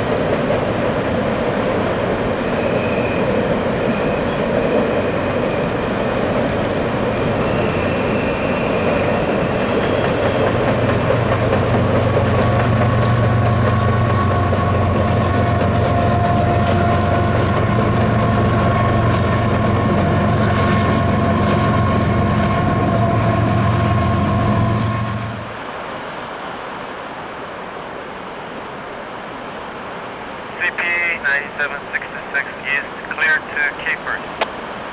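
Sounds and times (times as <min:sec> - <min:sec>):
diesel locomotive engine drone: 0:00.0 - 0:26.8, 0:30.4 - 0:34.9
train wheels clattering over rails: 0:07.5 - 0:25.0.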